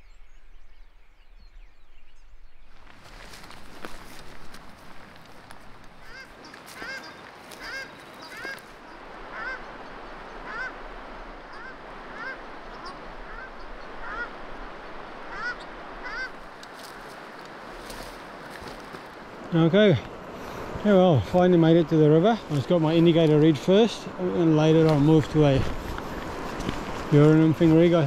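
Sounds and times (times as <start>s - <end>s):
waterfowl honking: 6.0s - 16.5s.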